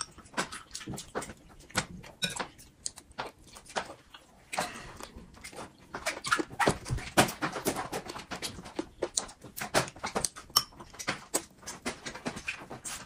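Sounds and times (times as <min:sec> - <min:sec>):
chewing and lip-smacking: 0:00.0 - 0:13.0.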